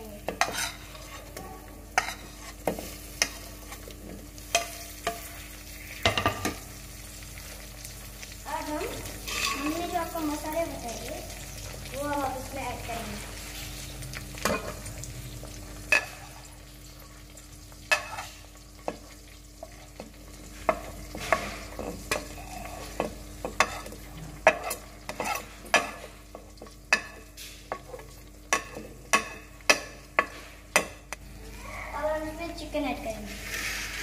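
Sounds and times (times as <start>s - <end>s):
onions frying in oil: 0.0s - 34.0s.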